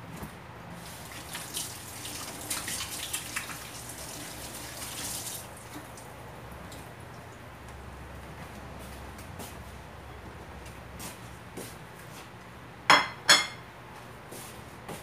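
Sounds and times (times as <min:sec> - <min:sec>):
hands rinsed with splashing: 0:00.8 - 0:06.1.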